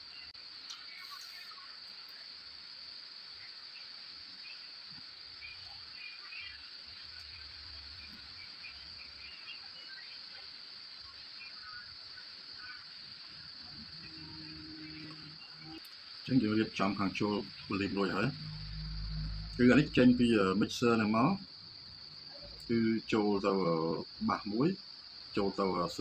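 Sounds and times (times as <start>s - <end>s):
high-pitched hum: 13.8s - 21.3s.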